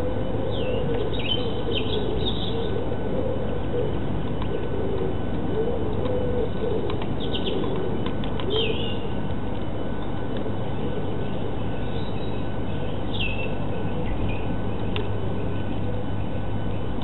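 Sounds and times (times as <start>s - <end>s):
pigeon cooing: 0.0s - 9.2s
steady hiss and low hum: 0.0s - 17.0s
small birds chirping: 0.5s - 2.8s, 7.1s - 9.2s, 11.2s - 16.9s.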